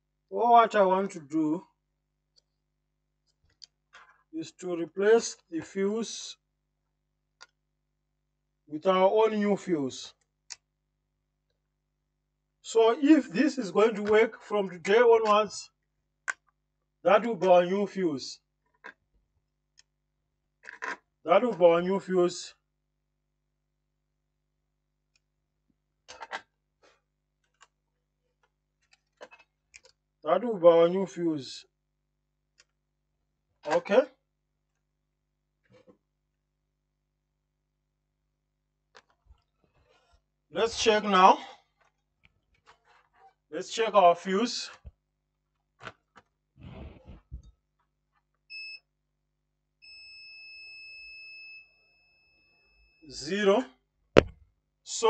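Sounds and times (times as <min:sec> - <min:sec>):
probe handling rustling and clicking: 0:26.1 - 0:30.0
multimeter continuity beep: 0:48.5 - 0:48.9.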